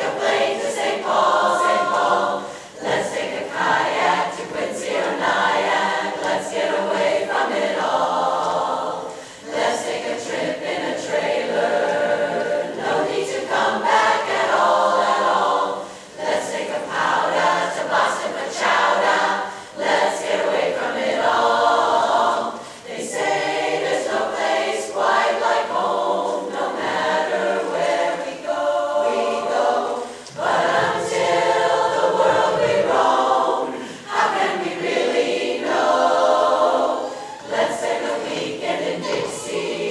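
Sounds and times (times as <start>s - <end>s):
women's chorus singing a cappella: 0.0s - 39.9s
short breaths: 9.1s - 9.4s, 22.6s - 22.8s, 33.8s - 34.1s.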